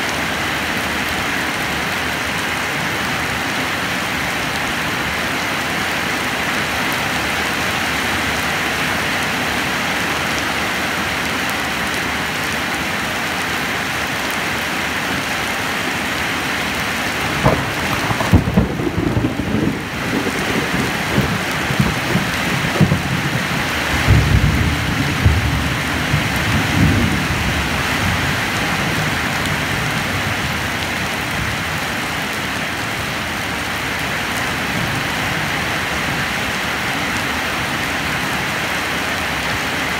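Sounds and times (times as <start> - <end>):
heavy rain: 0.0 - 39.9
thunder: 17.4 - 27.4.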